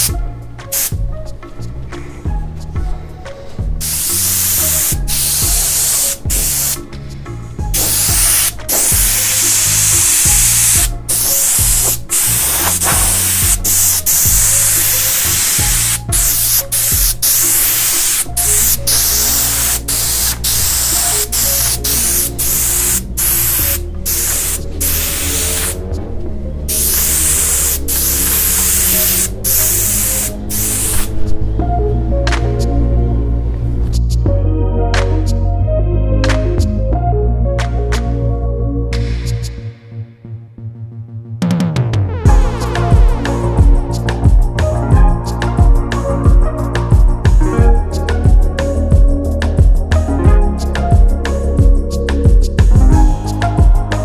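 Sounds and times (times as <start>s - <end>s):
background music: 0.0s - 54.0s
airbrush spraying hiss: 0.7s - 1.0s, 3.8s - 6.9s, 7.6s - 25.8s, 26.7s - 31.2s.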